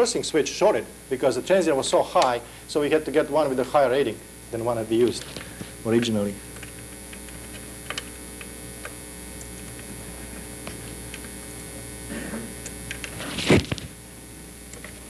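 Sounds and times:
mains hum: 0.0s - 15.0s.

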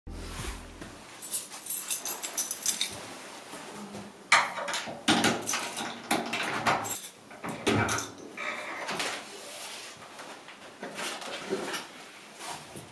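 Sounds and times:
keys jangling: 1.2s - 3.0s.

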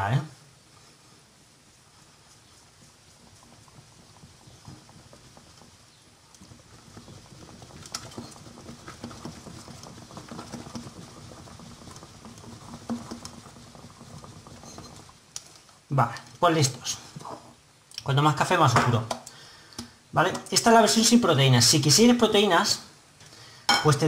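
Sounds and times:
spoon stirring thick batter: 1.6s - 17.6s.

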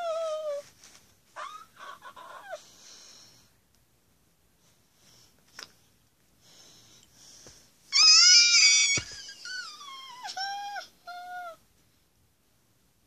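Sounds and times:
high-pitched baby-like crying: 7.9s - 11.6s.

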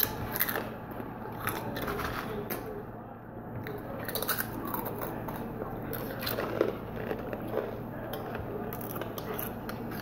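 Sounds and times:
chips crunching while chewed: 0.0s - 2.6s, 3.7s - 10.0s.

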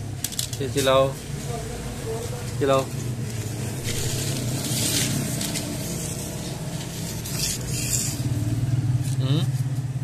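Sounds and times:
steady low hum: 0.0s - 10.0s
plastic toys clattering: 0.2s - 0.7s.

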